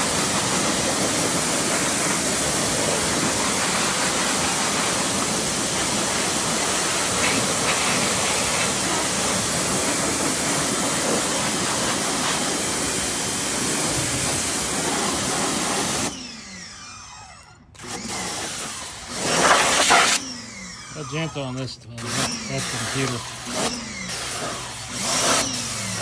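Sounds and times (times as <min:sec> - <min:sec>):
pressure washer spraying: 0:00.0 - 0:16.2, 0:17.8 - 0:21.4, 0:22.0 - 0:26.0
motor falling whine: 0:15.9 - 0:26.0.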